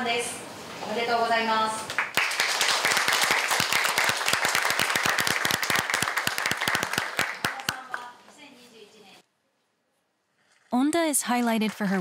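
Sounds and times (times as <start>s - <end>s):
audience applauding: 1.9s - 8.1s.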